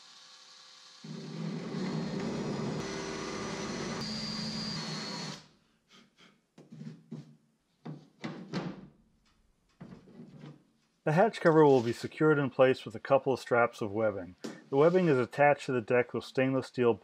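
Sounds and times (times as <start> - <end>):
electric drill sanding wood: 0.0 - 5.4.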